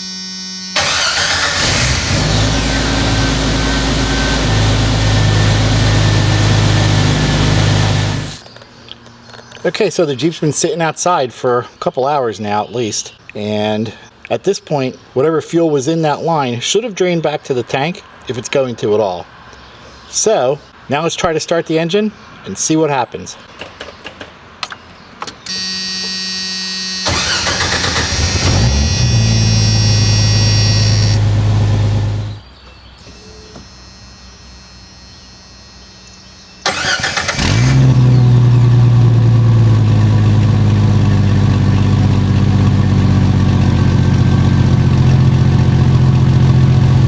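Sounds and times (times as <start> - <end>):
car engine idling: 0.8 - 8.4, 27.0 - 32.4, 36.0 - 47.0
car engine cranking: 0.8 - 8.5, 27.0 - 32.4, 36.1 - 43.6.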